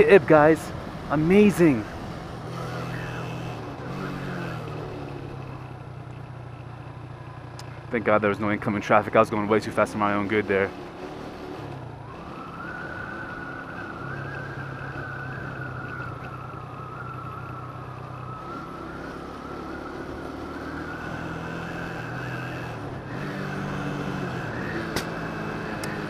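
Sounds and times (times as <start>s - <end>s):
motorcycle engine running: 0.0s - 13.1s
exhaust backfire pop: 24.9s - 25.2s.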